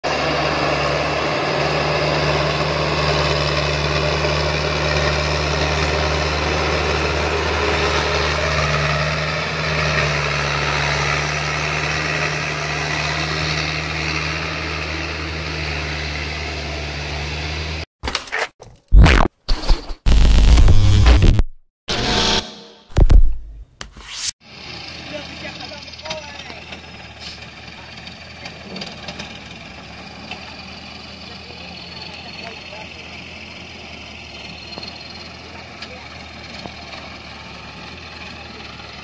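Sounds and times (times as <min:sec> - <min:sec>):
truck diesel engine running: 0:00.1 - 0:17.8, 0:24.5 - 0:39.0
electronic glitch sounds: 0:18.9 - 0:23.4.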